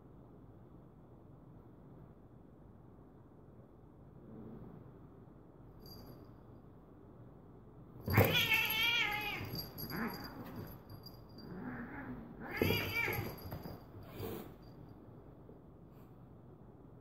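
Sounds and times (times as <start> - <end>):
cat yowling: 8.1 - 10.3, 11.6 - 13.4.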